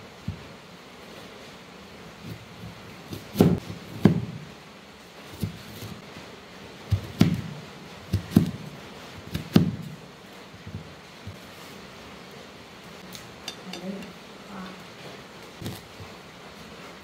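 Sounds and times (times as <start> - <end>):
cleaver chopping on wooden board: 3.1 - 4.4, 6.9 - 7.5, 8.1 - 8.7, 9.3 - 9.9.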